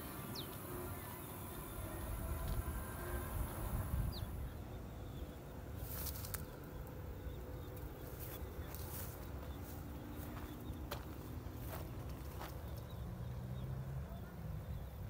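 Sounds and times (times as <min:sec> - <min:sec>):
high steady hiss: 0:00.0 - 0:10.2
bird chirp: 0:00.0 - 0:15.0
wind rumble on microphone: 0:01.7 - 0:06.5.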